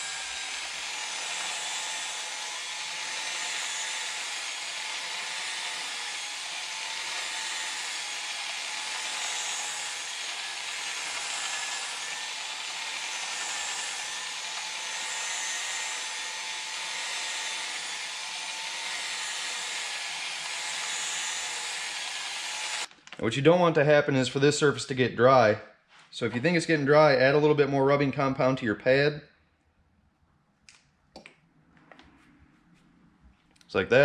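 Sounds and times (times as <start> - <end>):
cordless drill whirring: 0.0 - 22.9.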